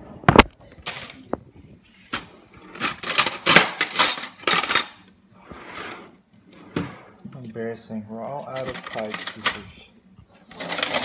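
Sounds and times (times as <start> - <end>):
cutlery clattering in drawer: 2.2 - 5.0, 8.4 - 9.8, 10.5 - 11.0.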